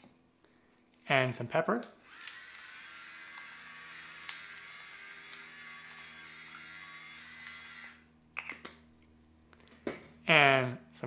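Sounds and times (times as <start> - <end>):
electric pepper mill grinding: 2.0 - 8.1.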